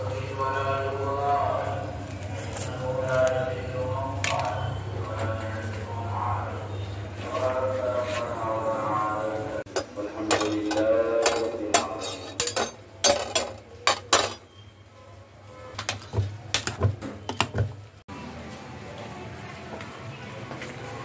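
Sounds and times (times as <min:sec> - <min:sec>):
metal spoon clinking on dishes: 0:09.7 - 0:14.5.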